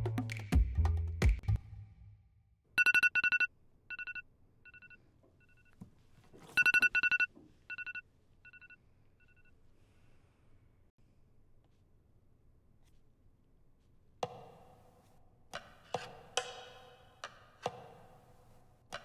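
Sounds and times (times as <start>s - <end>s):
phone ringtone beeps: 2.8s - 5.7s, 6.6s - 9.5s.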